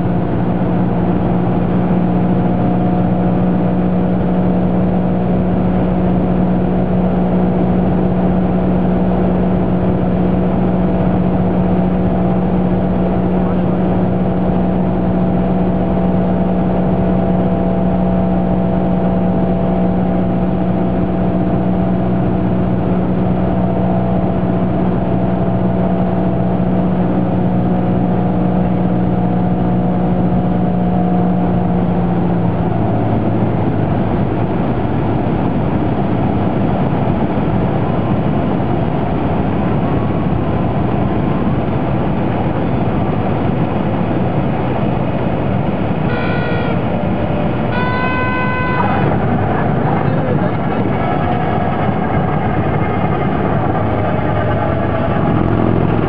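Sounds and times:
airplane engine and propeller droning: 0:00.0 - 0:56.0
rushing air: 0:33.4 - 0:56.0.

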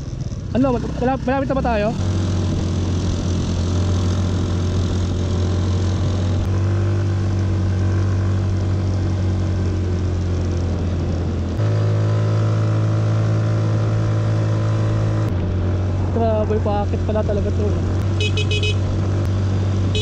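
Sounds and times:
scooter engine running: 0:17.3 - 0:20.0.

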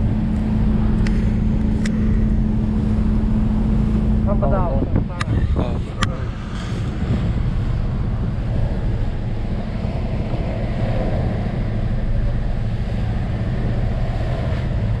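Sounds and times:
ferry engine droning: 0:00.0 - 0:15.0
water rushing along hull: 0:00.0 - 0:15.0
wind on microphone: 0:00.0 - 0:15.0.

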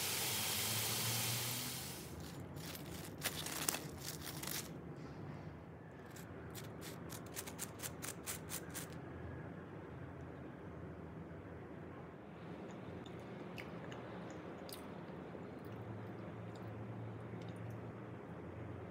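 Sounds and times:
crisp food crackling on plate: 0:02.1 - 0:04.8.

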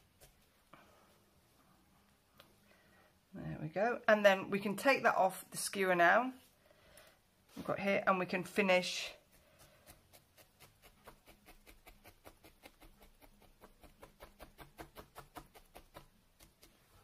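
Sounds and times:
felting needle poking: 0:09.2 - 0:17.0.

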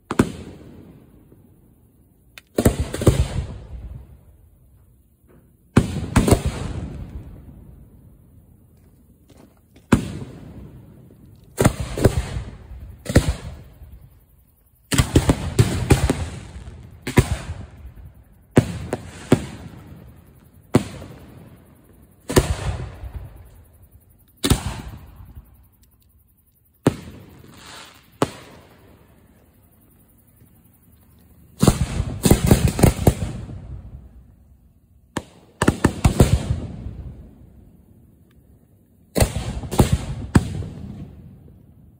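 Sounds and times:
fireworks bangs: 0:00.0 - 0:01.4, 0:02.5 - 0:04.1, 0:05.3 - 0:07.6, 0:09.8 - 0:14.0, 0:14.9 - 0:23.7, 0:24.4 - 0:25.5, 0:26.8 - 0:29.1, 0:31.5 - 0:34.3, 0:35.1 - 0:37.4, 0:39.1 - 0:41.6.

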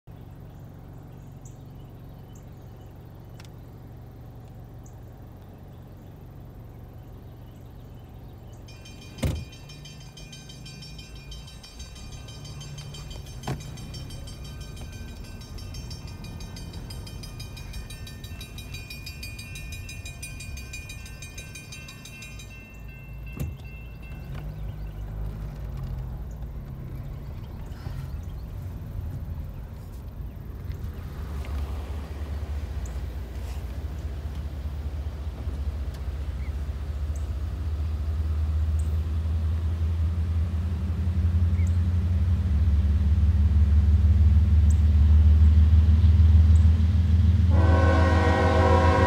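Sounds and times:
car engine idling: 0:00.2 - 0:49.0
crossing warning bell ringing: 0:08.6 - 0:25.4, 0:47.5 - 0:49.0.

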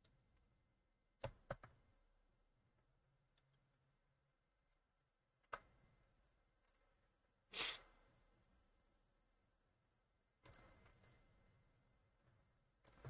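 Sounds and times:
faint clicks: 0:06.6 - 0:06.9, 0:10.4 - 0:11.2
short breathy puff: 0:07.5 - 0:07.9.

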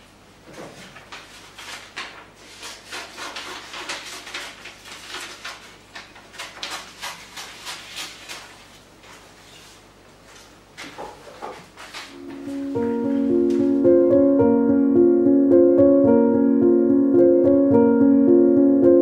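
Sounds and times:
paper rustling and crackling: 0:00.5 - 0:13.8.

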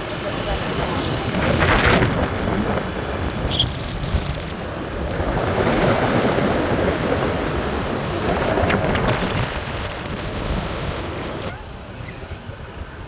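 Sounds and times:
road and traffic noise: 0:00.0 - 0:13.0
wind buffeting microphone: 0:00.0 - 0:13.0.

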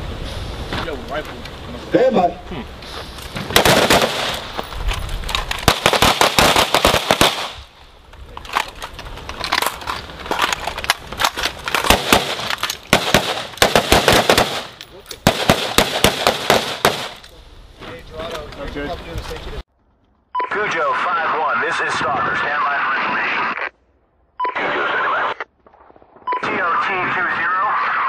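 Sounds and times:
rapid rifle fire: 0:03.6 - 0:04.5, 0:05.6 - 0:07.6, 0:11.8 - 0:17.2.

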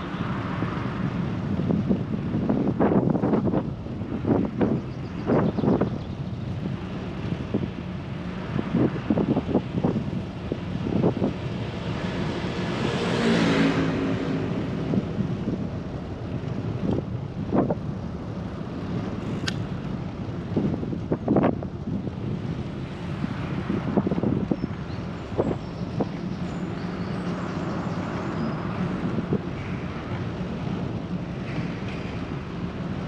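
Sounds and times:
wind on microphone: 0:00.0 - 0:33.0
motor vehicle passing: 0:11.2 - 0:16.8.

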